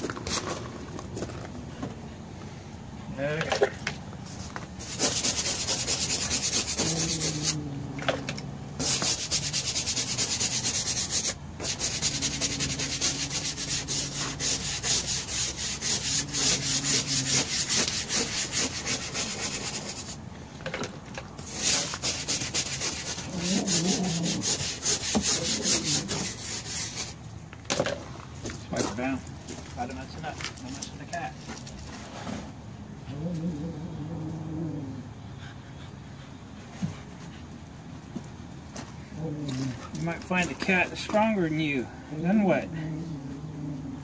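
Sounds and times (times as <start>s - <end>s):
scrub brush scrubbing vinyl seat: 4.3s - 7.6s, 8.8s - 20.2s, 21.4s - 27.2s, 39.9s - 41.7s.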